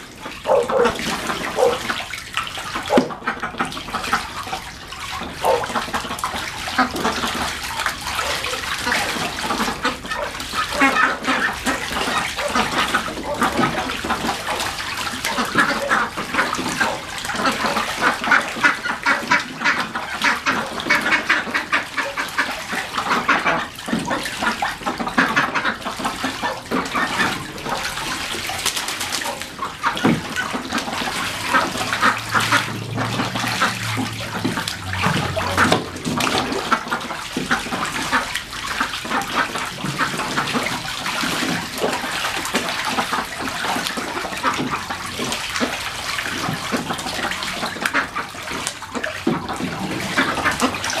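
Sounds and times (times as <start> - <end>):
ducks splashing in water: 0.0 - 51.0.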